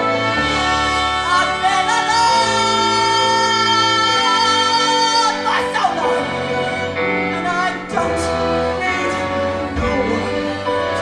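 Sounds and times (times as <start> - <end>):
woman singing: 0.0 - 5.9
instrumental accompaniment: 0.0 - 11.0.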